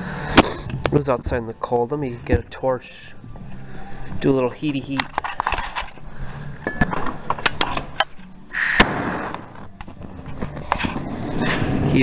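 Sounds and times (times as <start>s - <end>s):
short hissing rush: 8.5s - 9.3s.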